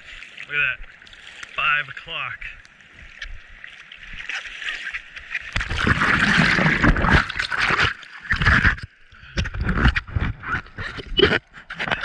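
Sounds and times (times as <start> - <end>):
water splashing around surfboard: 0.0 - 12.0.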